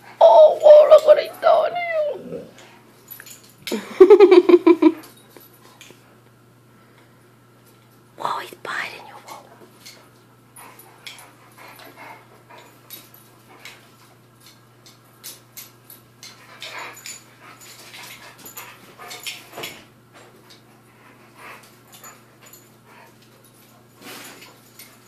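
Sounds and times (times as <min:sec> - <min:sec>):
dog vocal noises: 0:00.0 - 0:02.7.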